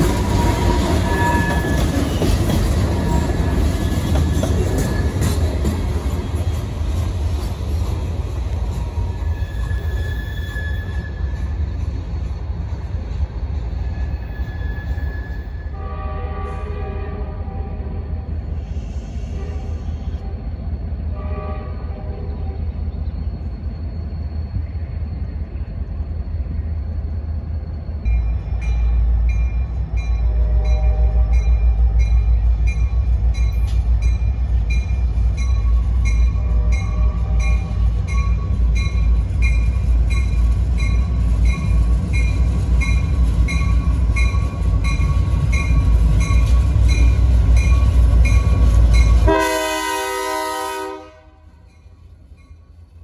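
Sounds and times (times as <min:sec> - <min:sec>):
train horn: 0:00.0 - 0:03.3, 0:15.3 - 0:18.2, 0:19.3 - 0:20.5, 0:21.1 - 0:22.7, 0:30.2 - 0:31.8, 0:36.2 - 0:37.8, 0:49.0 - 0:51.6
diesel locomotives rumbling: 0:00.0 - 0:53.0
locomotive bell ringing: 0:28.0 - 0:49.8.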